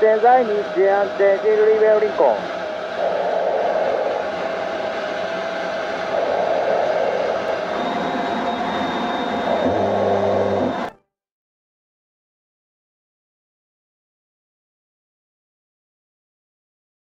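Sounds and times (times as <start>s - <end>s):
jet engine roar: 0.0s - 10.9s.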